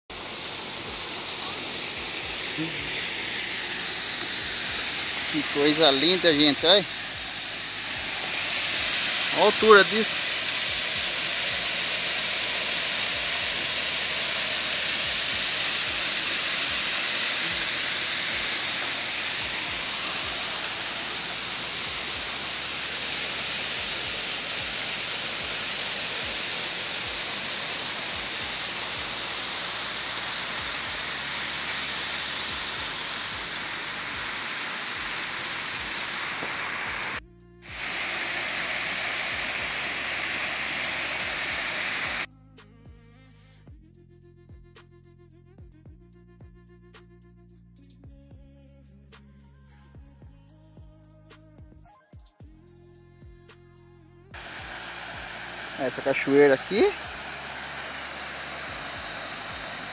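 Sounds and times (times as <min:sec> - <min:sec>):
waterfall roaring: 0:00.2 - 0:42.3, 0:54.4 - 0:59.9.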